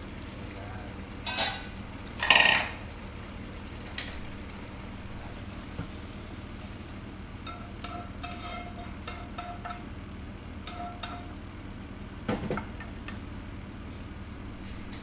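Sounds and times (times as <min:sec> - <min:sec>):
pan clunking on stove: 0:01.2 - 0:02.8
spoon scraping frying pan: 0:01.3 - 0:02.8, 0:07.4 - 0:09.9, 0:10.7 - 0:11.3.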